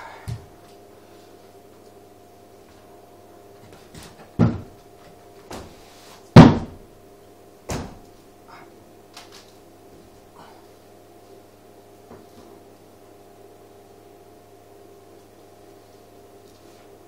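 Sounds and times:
thumps and knocks of climbing: 3.6s - 6.9s, 7.7s - 8.1s.

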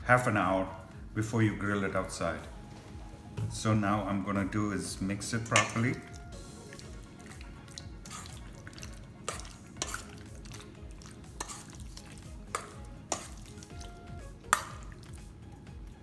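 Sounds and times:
spoon stirring wet marinade: 5.4s - 16.0s
spoon clinking against metal bowl: 5.5s - 15.0s.

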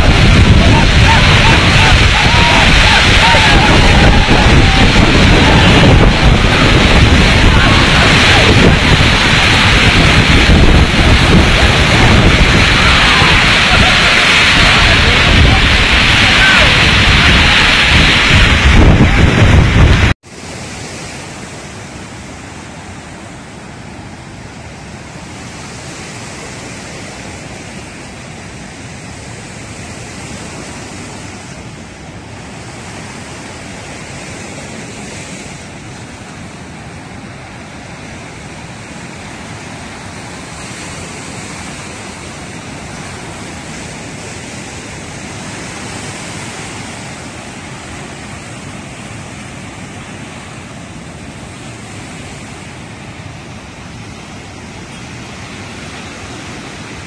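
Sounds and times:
loud burst of noise: 0.0s - 20.2s
water roaring through spillway: 0.0s - 57.0s.

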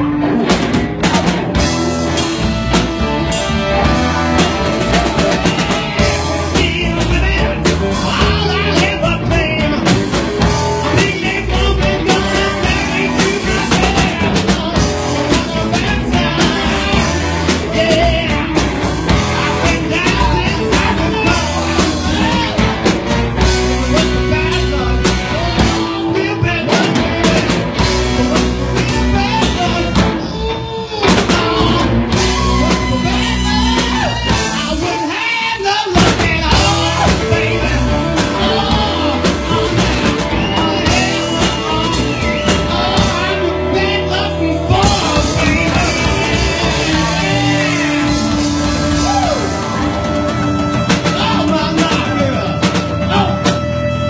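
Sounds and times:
blues-rock band playing: 0.0s - 54.0s
man singing: 3.5s - 54.0s.

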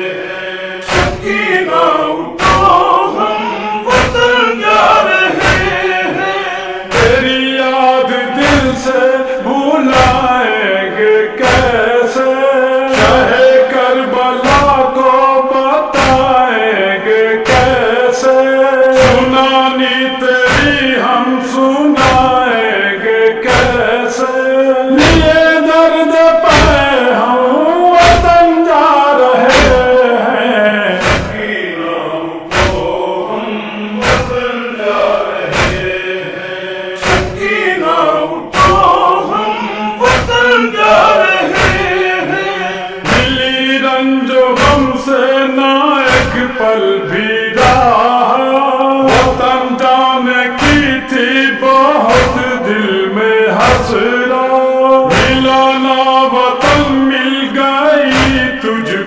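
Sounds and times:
men chanting a lament: 0.0s - 59.0s
hand-beaten thumps: 0.9s - 1.4s, 3.9s - 4.4s, 11.4s - 11.8s, 19.0s - 19.4s, 23.5s - 23.9s, 29.5s - 30.0s, 31.0s - 31.5s, 32.5s - 33.0s, 34.0s - 34.5s, 35.5s - 36.0s, 37.0s - 37.6s, 40.0s - 40.6s, 41.4s - 42.0s, 43.0s - 43.5s, 44.6s - 45.0s, 49.1s - 49.6s, 52.1s - 52.5s, 55.1s - 55.6s, 58.1s - 58.6s.

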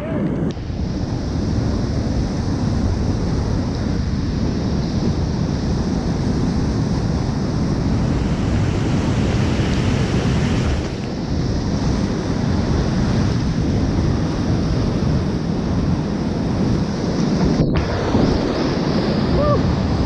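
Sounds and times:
whitewater rapids rushing: 6.6s - 11.1s, 17.8s - 20.0s.

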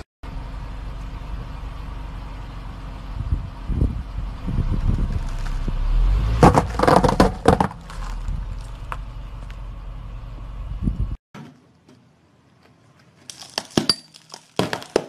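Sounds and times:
car engine rumbling low: 0.2s - 11.2s.

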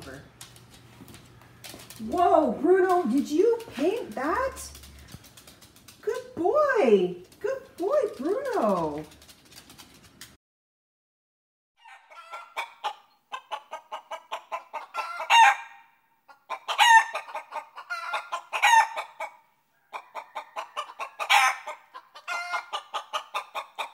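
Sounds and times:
chickens clucking: 11.8s - 15.6s, 16.3s - 23.9s
chicken squawking: 11.8s - 23.9s.

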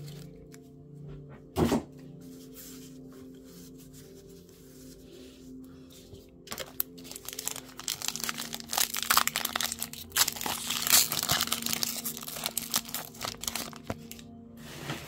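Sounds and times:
foil wrapper crinkling: 0.0s - 0.6s, 6.5s - 14.2s.

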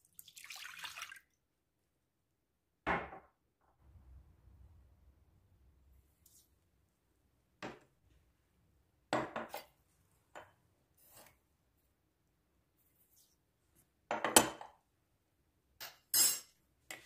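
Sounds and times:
glass kitchenware knocks and scrapes: 9.1s - 9.7s.

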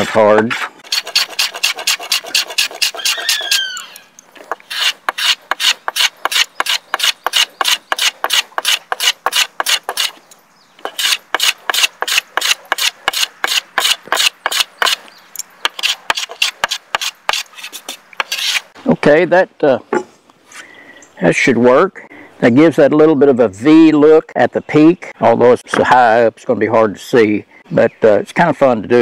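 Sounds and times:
block plane shaving wood: 0.8s - 3.6s, 4.7s - 10.1s, 10.8s - 15.0s.

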